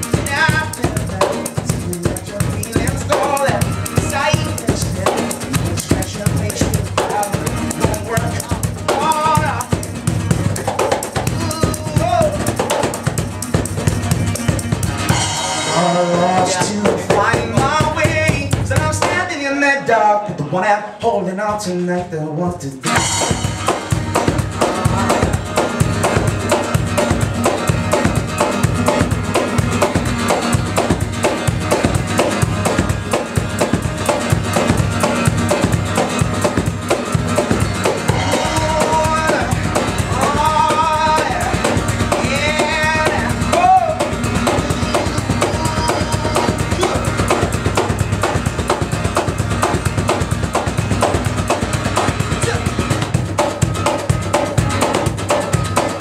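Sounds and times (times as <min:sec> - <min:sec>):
person singing: 0:00.0 - 0:13.6, 0:14.2 - 0:23.0, 0:24.6 - 0:26.2, 0:37.8 - 0:47.9
acoustic guitar strumming: 0:00.0 - 0:56.0
hand-slapped cajon beat: 0:00.0 - 0:56.0.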